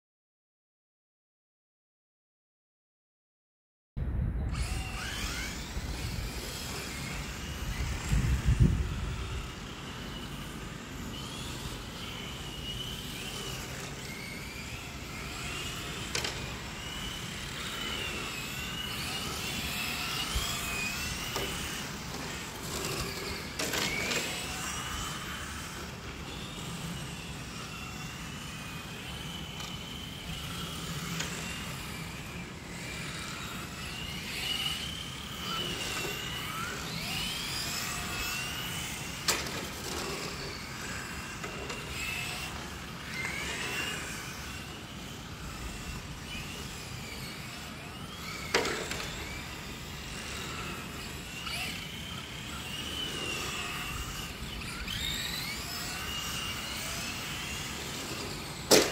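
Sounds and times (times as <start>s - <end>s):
low rumble: 4.0s - 5.0s
toy car motor whine: 4.5s - 58.9s.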